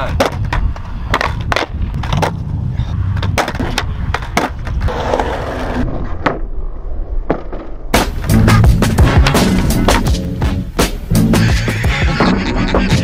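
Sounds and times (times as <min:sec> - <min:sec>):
skateboard clacking on ground: 0:00.0 - 0:02.5, 0:03.1 - 0:06.4
skateboard wheels rolling on concrete: 0:00.0 - 0:13.0.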